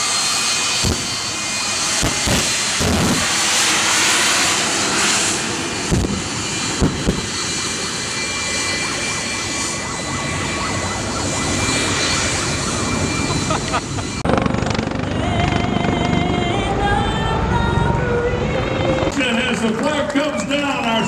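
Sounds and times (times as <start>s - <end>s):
jet engine roar: 0.0s - 21.0s.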